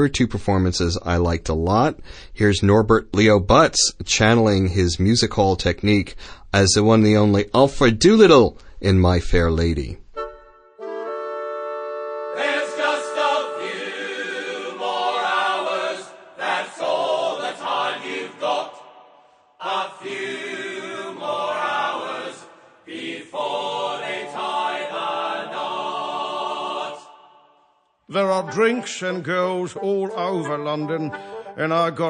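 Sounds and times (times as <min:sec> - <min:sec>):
voices singing: 0:12.2 - 0:32.0.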